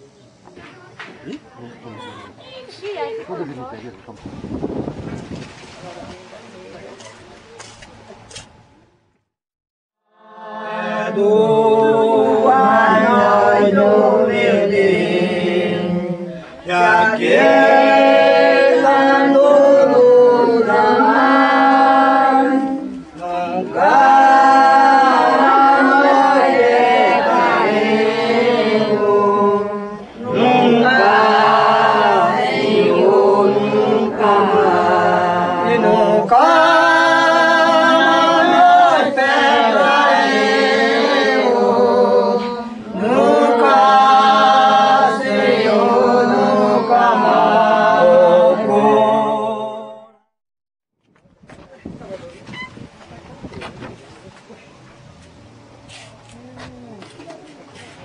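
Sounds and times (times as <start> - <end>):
group singing unaccompanied chant: 10.0 - 50.2.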